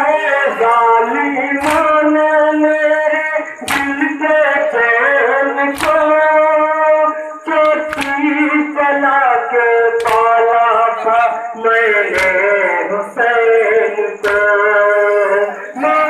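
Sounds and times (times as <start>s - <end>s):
man chanting a lament: 0.0s - 16.0s
chest beating slaps: 1.5s - 2.0s, 3.6s - 4.0s, 5.7s - 6.3s, 7.9s - 8.3s, 10.0s - 10.4s, 12.1s - 12.5s, 14.2s - 14.6s.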